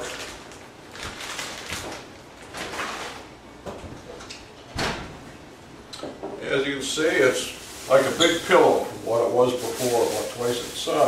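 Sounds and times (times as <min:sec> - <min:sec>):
oven door opening and shutting: 0:04.7 - 0:05.3.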